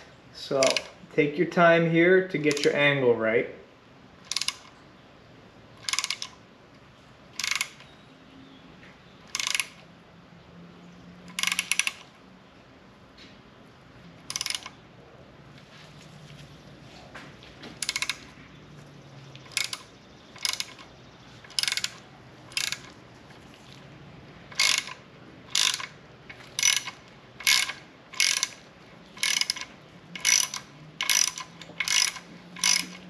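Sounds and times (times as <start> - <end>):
hand ratchet clicking: 0.5 - 1.0, 2.4 - 2.8, 4.2 - 4.7, 5.8 - 6.4, 7.4 - 7.9, 9.3 - 9.8, 11.3 - 12.1, 14.3 - 14.8, 17.8 - 18.3, 19.4 - 23.0, 24.5 - 33.0.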